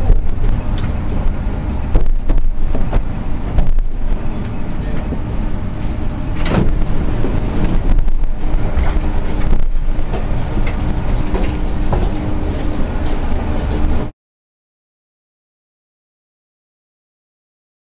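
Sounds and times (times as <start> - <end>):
train low rumble and hum: 0.0 - 14.1.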